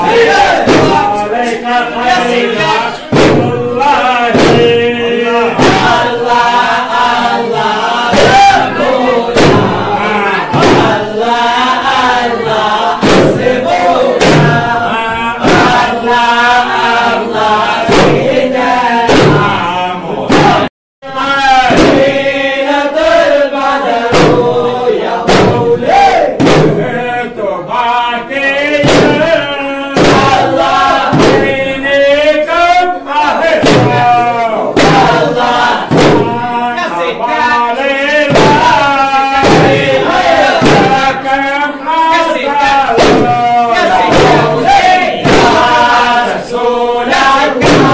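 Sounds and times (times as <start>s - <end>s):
loud drum strokes: 0.0s - 19.7s, 21.5s - 22.4s, 24.0s - 27.0s, 28.8s - 31.9s, 33.5s - 36.6s, 38.2s - 41.3s, 42.9s - 47.9s
men chanting together: 0.0s - 47.9s.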